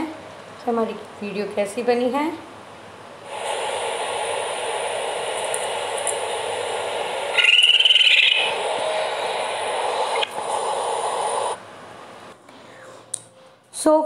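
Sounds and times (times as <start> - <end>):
steady hiss: 3.2 - 12.4
raccoon chittering: 7.3 - 8.6.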